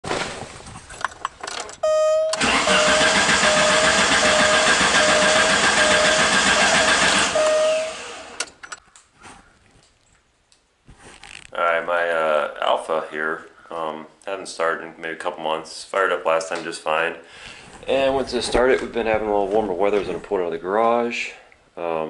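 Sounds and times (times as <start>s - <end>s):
car engine cranking on starter: 2.3s - 8.6s.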